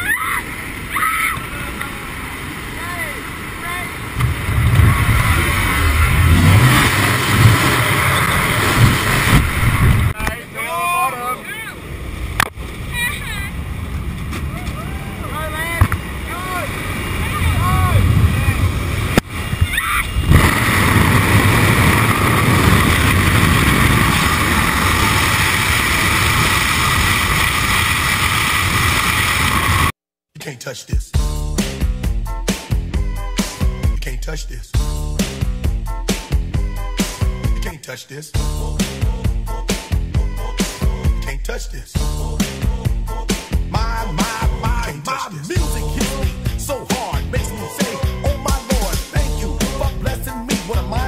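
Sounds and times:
wind rushing: 2.2 - 10.2, 11.8 - 29.9
wind buffeting microphone: 3.1 - 10.2, 11.8 - 29.9
aircraft engine noise: 11.7 - 29.9.

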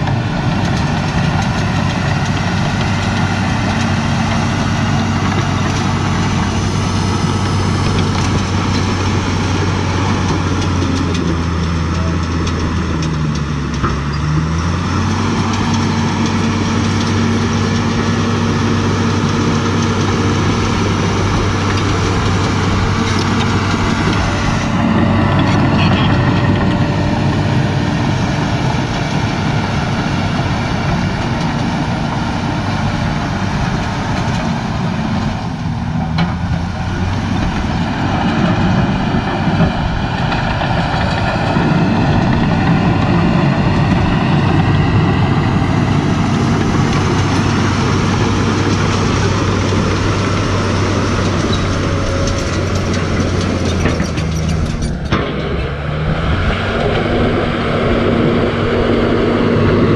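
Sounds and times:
diesel engine of heavy machinery: 0.0 - 59.9.

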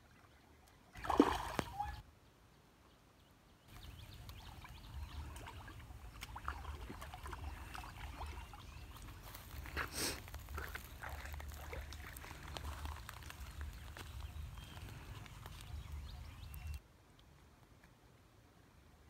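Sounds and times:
footsteps rustling on dry leaves: 8.9 - 16.5.

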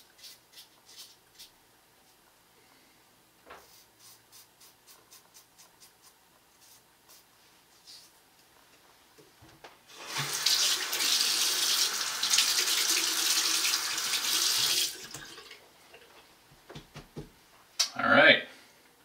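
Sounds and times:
faucet running into sink: 9.9 - 15.6.

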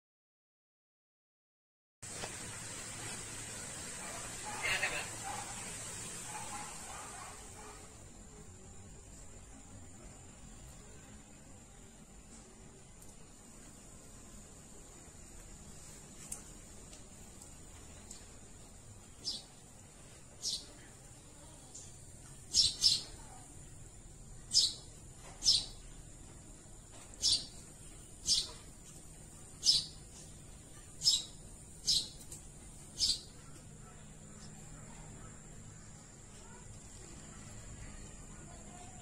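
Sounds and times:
faint high insect hum: 2.5 - 39.0
bird chirping: 19.1 - 19.6, 20.4 - 20.8, 21.8 - 23.2, 24.4 - 25.9, 27.2 - 35.1.

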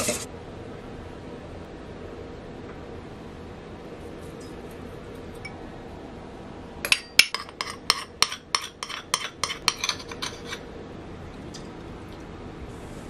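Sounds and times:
metal spoon clinking on bowls: 6.9 - 10.6.

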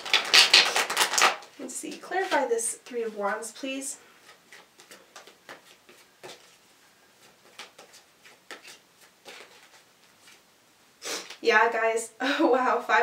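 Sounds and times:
cards being shuffled: 0.0 - 3.5, 4.2 - 6.6, 7.2 - 10.4.

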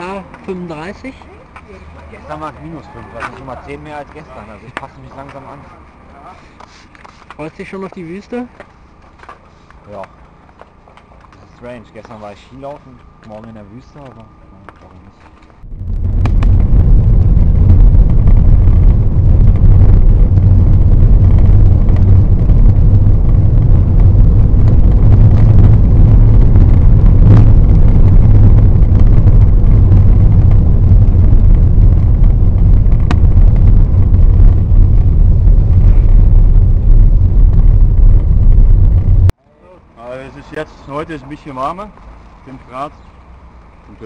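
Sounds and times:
vehicle rumbling on the move: 0.0 - 39.4, 40.0 - 44.0.

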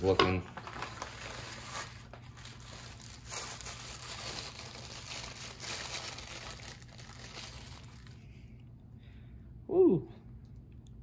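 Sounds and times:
tissue paper crinkling: 0.4 - 8.3.

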